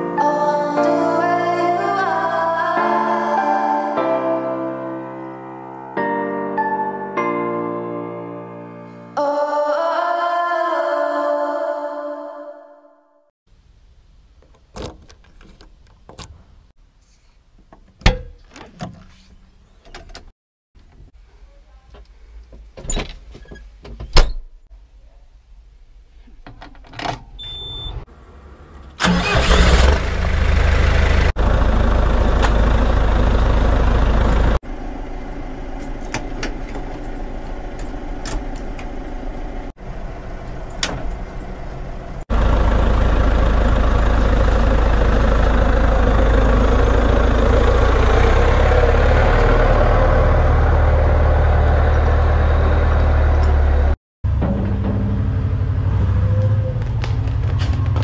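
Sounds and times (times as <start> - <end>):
diesel engine starting and idling: 27.4 - 58.0.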